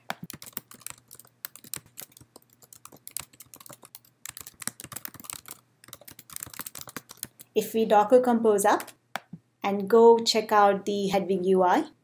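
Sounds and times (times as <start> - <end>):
typing on computer keyboard: 0.0 - 7.6.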